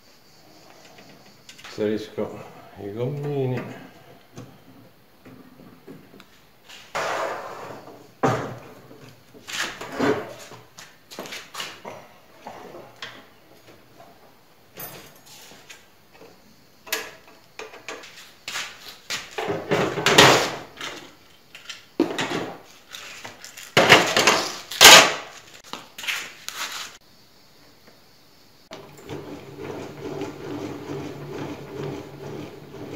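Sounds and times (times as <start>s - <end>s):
table saw knocks and rattles: 23.8s - 25.1s.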